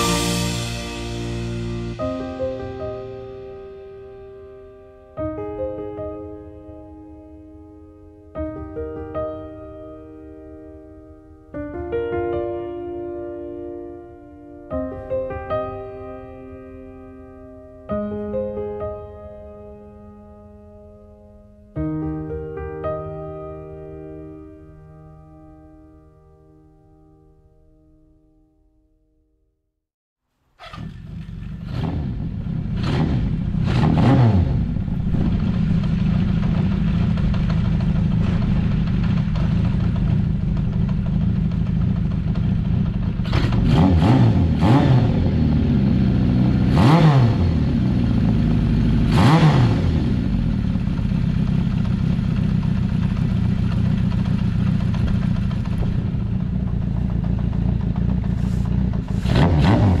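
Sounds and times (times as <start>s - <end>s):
motorcycle engine running: 30.6s - 60.0s
motorcycle passing by: 30.6s - 60.0s.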